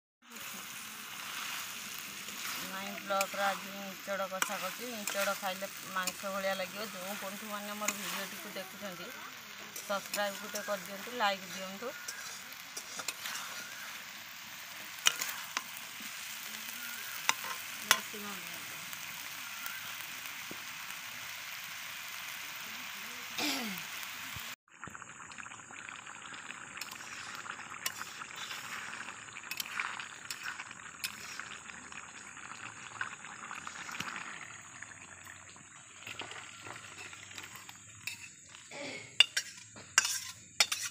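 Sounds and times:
curry sizzling and bubbling: 0.2s - 40.9s
ladle scraping metal: 39.2s - 40.9s.

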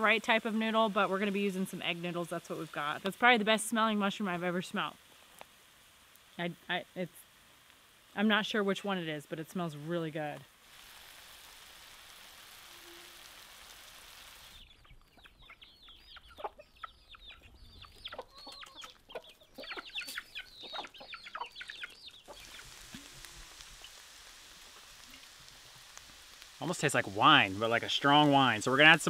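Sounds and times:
food sizzling in butter: 0.0s - 14.7s, 19.9s - 29.0s
hens clucking: 14.8s - 24.0s.

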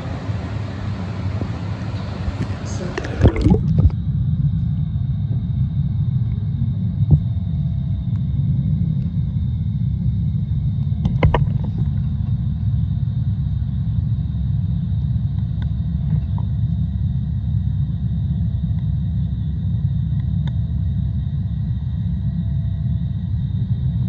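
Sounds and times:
low underwater rumble: 0.9s - 14.1s.

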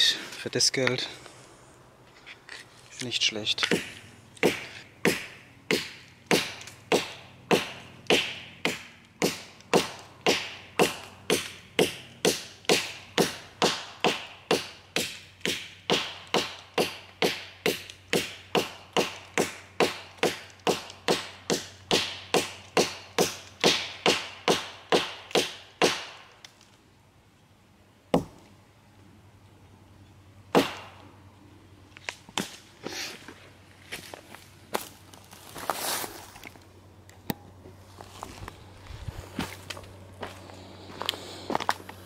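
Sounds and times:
knife chopping wood: 28.1s - 28.4s.

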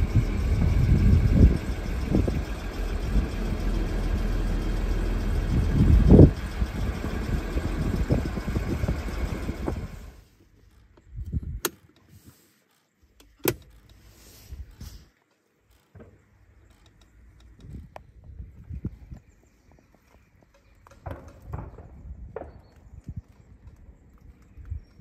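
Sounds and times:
loud low rumble: 0.0s - 10.2s
gear selector lever clicks: 10.8s - 12.1s, 12.7s - 14.0s.

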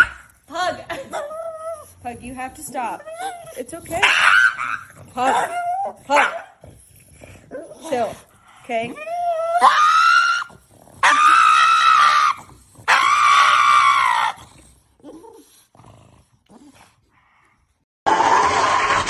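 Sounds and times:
dog screaming: 3.2s - 6.4s, 9.1s - 14.4s, 18.1s - 19.0s.

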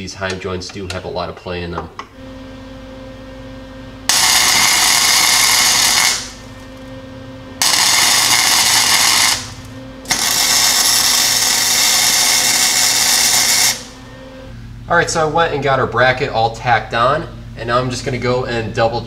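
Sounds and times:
steady low hum: 0.0s - 19.0s
welder arc noise bursts: 4.1s - 6.7s, 7.6s - 14.1s.

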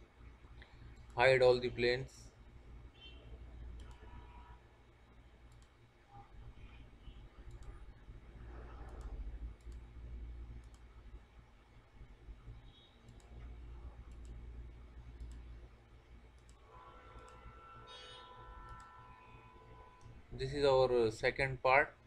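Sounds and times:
faint low hum: 0.0s - 22.0s
computer mouse clicking: 3.7s - 4.0s, 5.5s - 5.8s, 7.4s - 7.8s, 8.7s - 9.9s, 10.6s - 10.9s, 13.0s - 14.4s, 15.1s - 15.5s, 16.3s - 16.6s, 17.2s - 17.4s, 18.7s - 18.9s.

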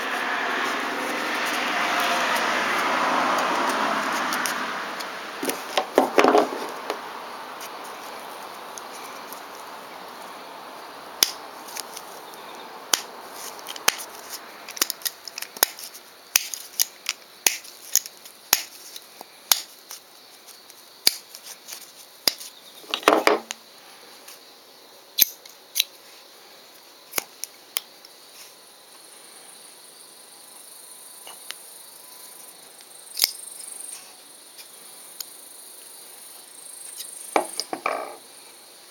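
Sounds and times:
knife blade metal clicks: 25.2s - 25.9s.

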